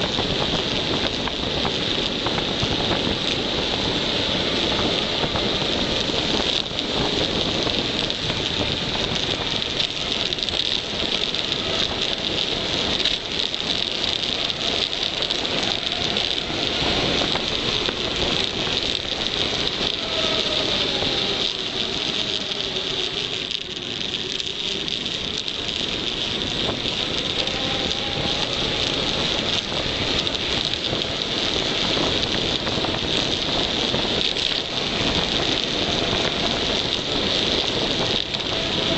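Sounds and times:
tyre roar on tarmac: 0.0 - 38.9
wind rushing over microphone: 0.0 - 38.9.

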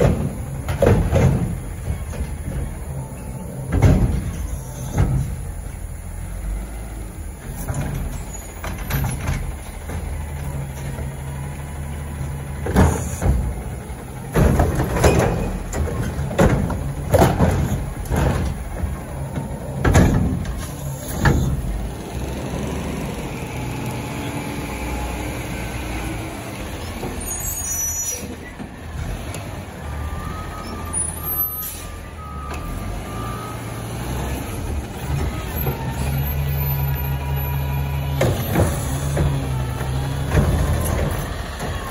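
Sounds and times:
garbage truck diesel engine: 0.0 - 41.9
hydraulics working: 0.0 - 41.9
air brake hissing: 31.0 - 32.1.

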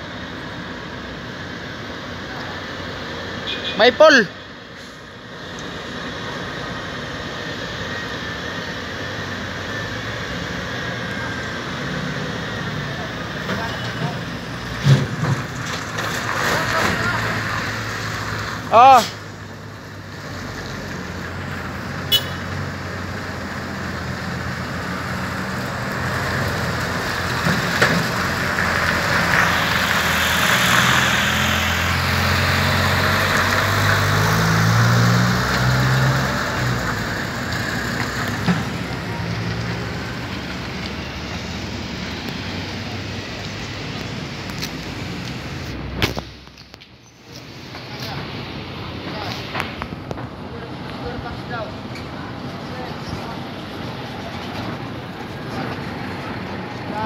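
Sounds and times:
vehicle passing by: 16.1 - 46.2.

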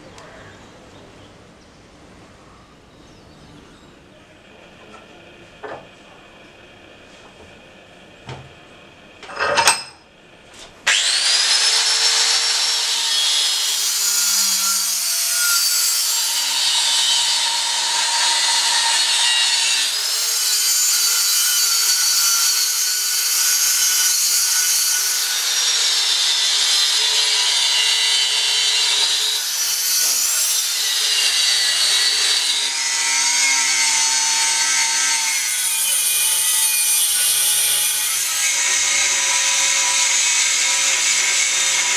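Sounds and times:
angle grinder cutting metal: 10.9 - 41.9.

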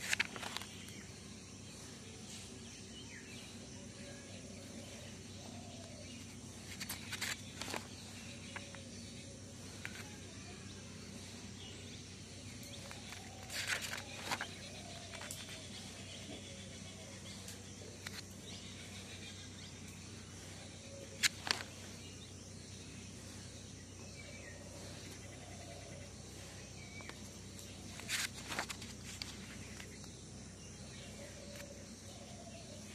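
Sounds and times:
notebook pages turning: 0.0 - 1.1, 6.2 - 9.0, 9.7 - 10.3, 12.7 - 16.4, 21.1 - 21.9, 27.0 - 30.1.

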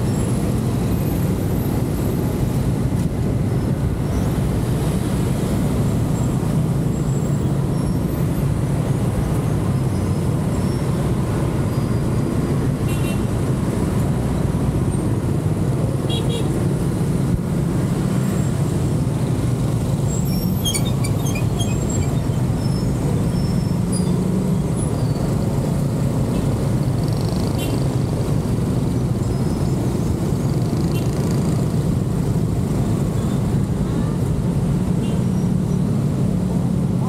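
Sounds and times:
car driving road noise: 0.0 - 37.0.

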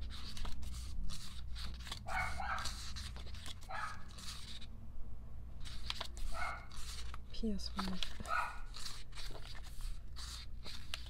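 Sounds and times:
paper and pages rustling: 0.0 - 4.7, 5.6 - 11.0
dog barking: 2.1 - 2.8, 3.7 - 4.1, 6.3 - 6.7, 8.2 - 8.7.

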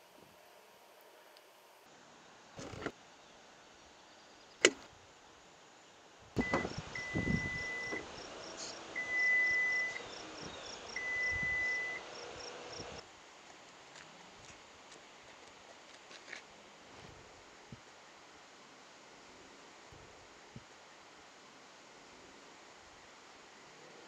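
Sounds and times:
charge port door clicking: 4.6 - 4.8, 6.4 - 6.8
high electronic beeps: 11.0 - 12.0.

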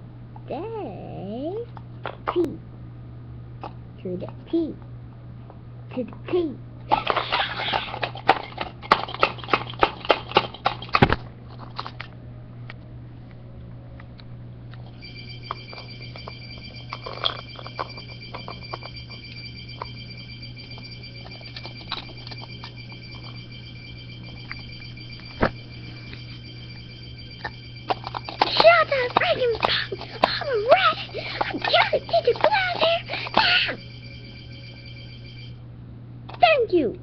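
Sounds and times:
low hum: 6.7 - 36.0
phone electronic beep: 14.9 - 35.6.

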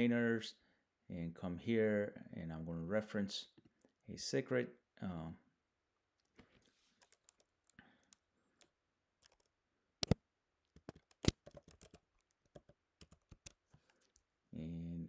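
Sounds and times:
keyboard and mouse clicks: 6.2 - 14.2.

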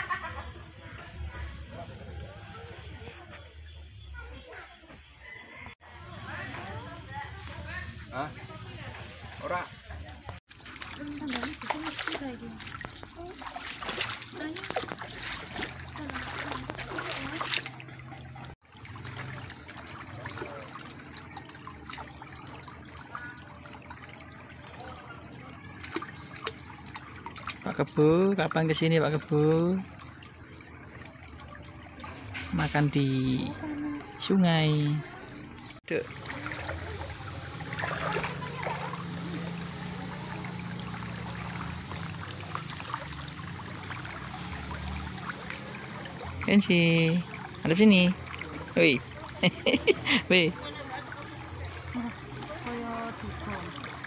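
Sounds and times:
stream running over stones: 6.2 - 54.0
small splashes from hands and feet: 8.6 - 54.0.

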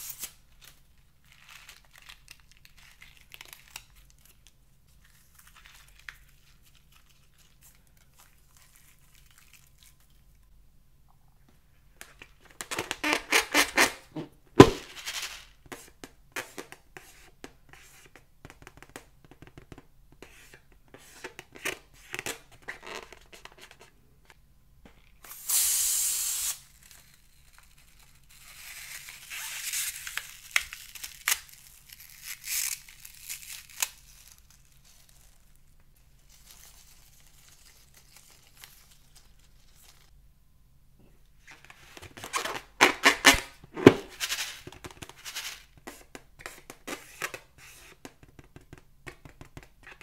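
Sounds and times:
slime squishing and crinkling: 0.5 - 10.4
balloon squeaking: 13.0 - 14.8.

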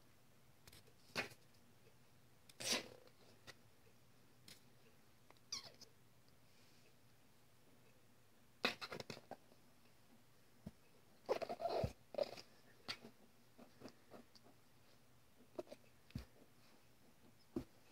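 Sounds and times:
faint scuffling and scratching: 8.7 - 17.9.

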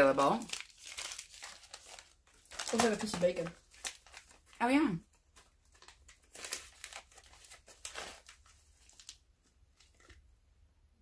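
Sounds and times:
plastic pouch crinkling: 0.0 - 10.3.

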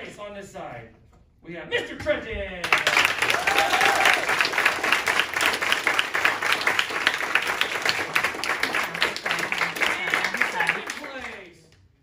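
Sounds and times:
audience applauding: 2.6 - 11.6.

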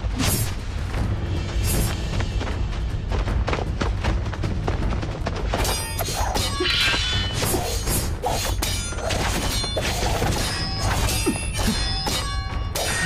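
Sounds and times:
low dramatic music: 0.0 - 13.0
sword hits and metal clashes: 5.6 - 13.0.

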